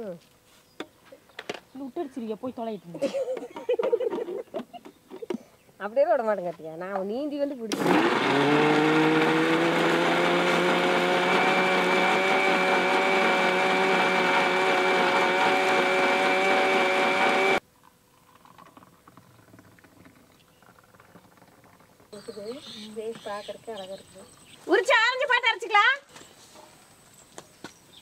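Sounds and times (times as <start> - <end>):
mixer grinder running: 7.7 - 17.6.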